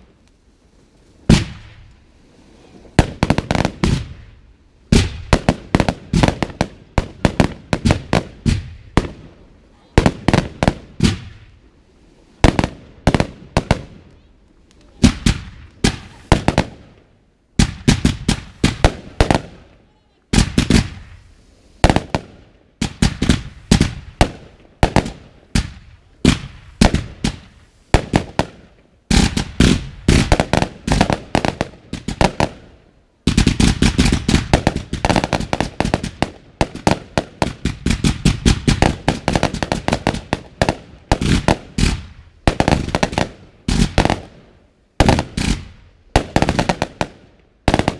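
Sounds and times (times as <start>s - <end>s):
fireworks bangs: 0.0s - 47.9s.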